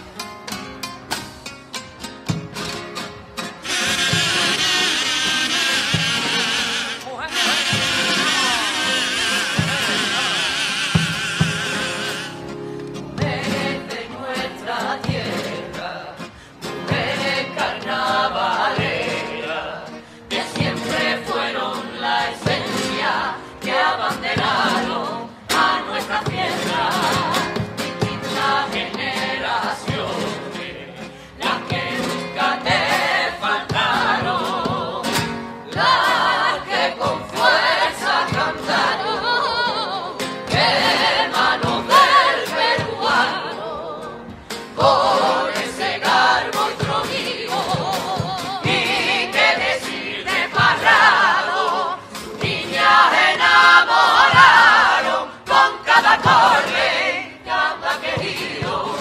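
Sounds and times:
women singing into microphones: 0:13.2 - 0:59.0.

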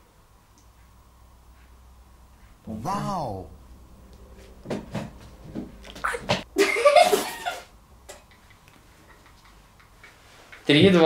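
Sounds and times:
people laughing: 0:06.6 - 0:10.2.

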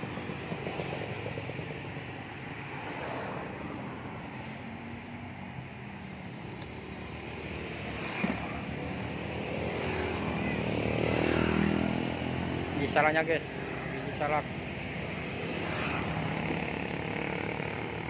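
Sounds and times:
road traffic passing: 0:00.0 - 0:18.0.

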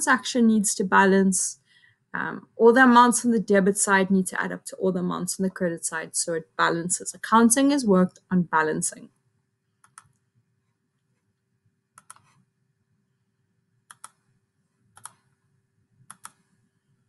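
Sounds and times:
computer mouse clicking: 0:09.8 - 0:10.2, 0:12.0 - 0:12.4, 0:13.9 - 0:14.2, 0:14.9 - 0:15.3, 0:16.0 - 0:16.5.

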